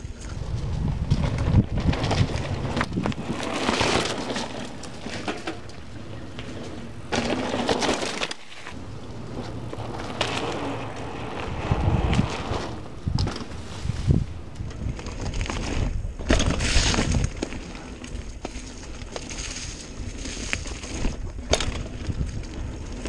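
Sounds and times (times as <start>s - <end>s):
wind rumble on microphone: 0.0s - 7.8s, 8.7s - 23.0s
tyres rattling over stones: 0.3s - 17.3s
tyres crunching through leaves: 0.4s - 15.8s.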